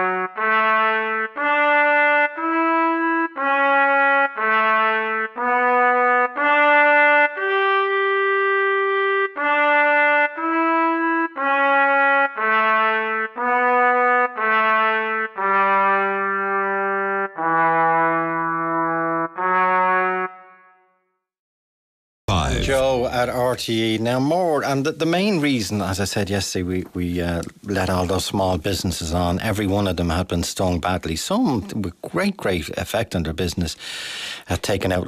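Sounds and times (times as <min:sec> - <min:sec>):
slow brass melody: 0:00.0 - 0:21.2.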